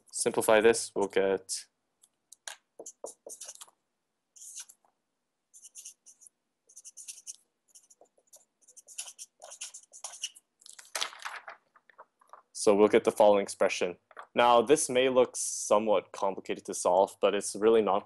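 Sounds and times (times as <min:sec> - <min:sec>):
pen scratching on paper: 0:02.8 - 0:03.7, 0:04.4 - 0:04.8, 0:05.5 - 0:10.4
paper rustle: 0:10.2 - 0:12.6.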